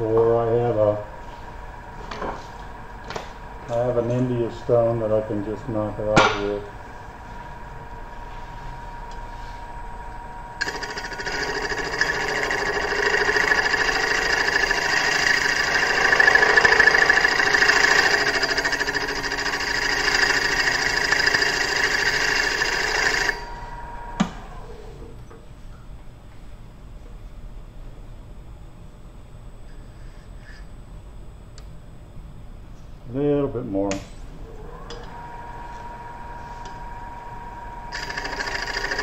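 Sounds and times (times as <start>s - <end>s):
thin steady whine: 0.0s - 39.0s
tool scraping spinning metal disc: 10.6s - 23.5s, 37.9s - 39.0s
click: 31.5s - 31.7s.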